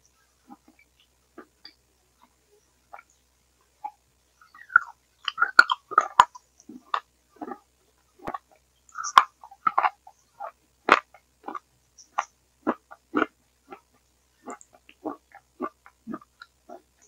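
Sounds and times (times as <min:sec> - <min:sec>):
distorted gurgling mouth sounds: 0:03.8 - 0:17.0
wet chewing and mouth clicks: 0:04.6 - 0:07.6, 0:08.2 - 0:17.0.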